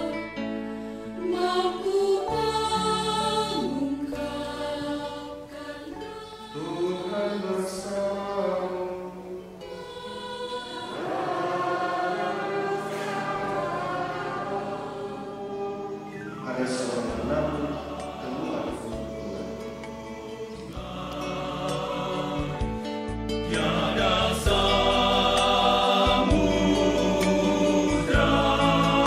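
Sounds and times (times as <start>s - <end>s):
choir singing a slow chant: 1.1s - 29.0s.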